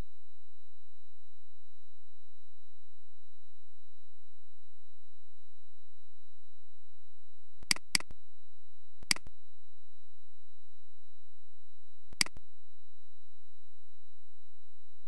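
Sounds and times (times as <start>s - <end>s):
computer mouse clicks: 7.6s - 8.1s, 12.2s - 12.4s.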